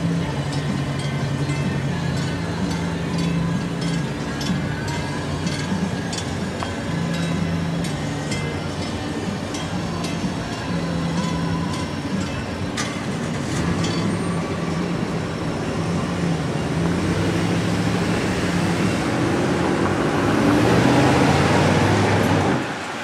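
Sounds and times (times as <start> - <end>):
low diesel engine drone: 0.0 - 23.0
rushing noise: 3.5 - 23.0.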